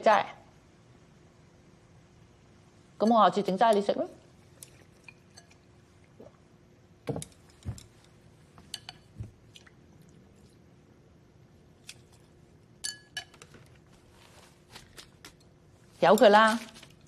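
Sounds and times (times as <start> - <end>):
soft gulps: 6.0 - 6.6
chopsticks clinking against bowl: 8.6 - 9.1, 12.8 - 13.5.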